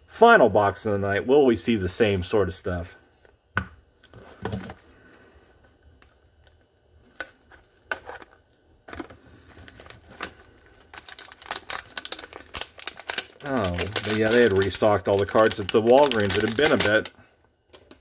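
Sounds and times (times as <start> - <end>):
cardboard crinkling: 9.4 - 17.1.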